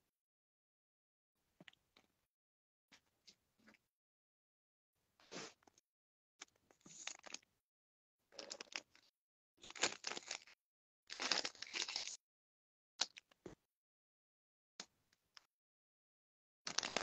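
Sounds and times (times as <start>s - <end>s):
plastic bag crinkling: 9.6s - 10.5s, 16.7s - 17.0s.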